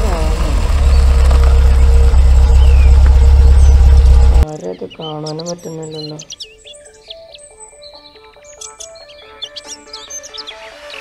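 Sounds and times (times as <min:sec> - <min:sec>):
loud low rumble: 0:00.0 - 0:04.4
birds chirping: 0:00.0 - 0:11.0
soft background music: 0:04.7 - 0:11.0.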